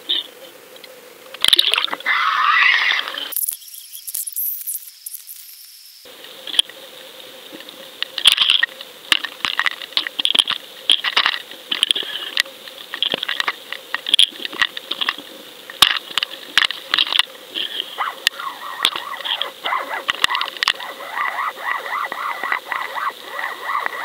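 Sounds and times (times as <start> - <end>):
faint steady hum: 0.0 - 24.0
underwater clicks and crackling: 18.2 - 23.0.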